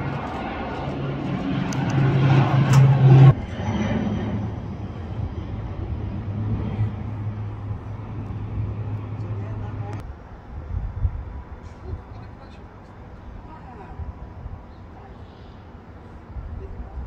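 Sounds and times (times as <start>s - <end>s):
engine hum: 0.0s - 10.4s.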